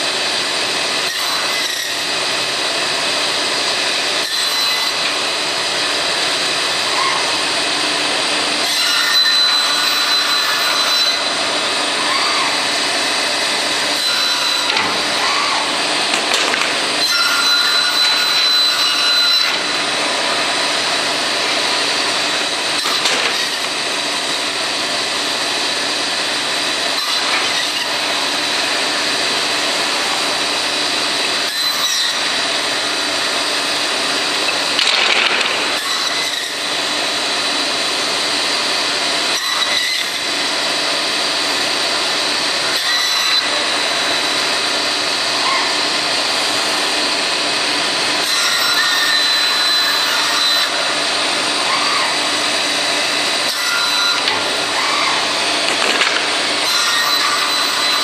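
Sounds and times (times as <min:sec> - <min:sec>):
band saw cutting wood: 0:00.0 - 0:58.0
clamps clicking and knocking: 0:16.0 - 0:18.2, 0:22.8 - 0:23.8, 0:34.4 - 0:35.8, 0:55.6 - 0:57.8.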